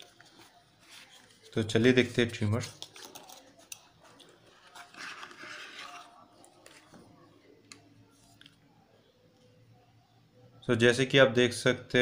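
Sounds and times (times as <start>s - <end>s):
paper packaging rustling: 0.0s - 7.4s.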